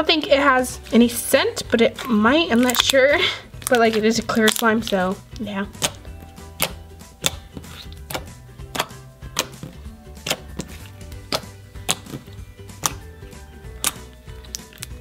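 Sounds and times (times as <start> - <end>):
quiet background music: 0.0 - 15.0
slime popping and clicking: 2.5 - 3.0, 3.6 - 13.1, 13.7 - 15.0.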